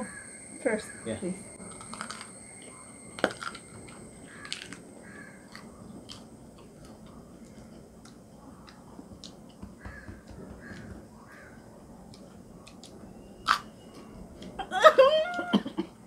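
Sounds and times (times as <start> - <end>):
people chewing wet crunching: 1.6 - 9.6.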